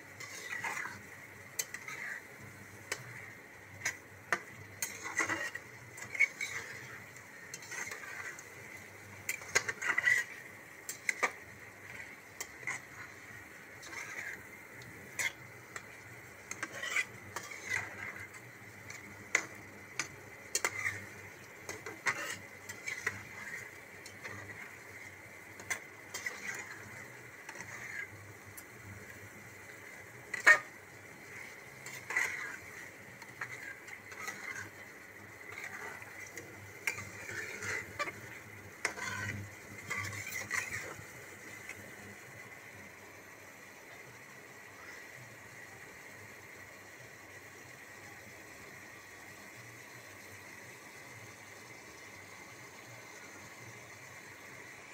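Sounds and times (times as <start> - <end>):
metal spatula scraping a pan: 0.0 - 41.8.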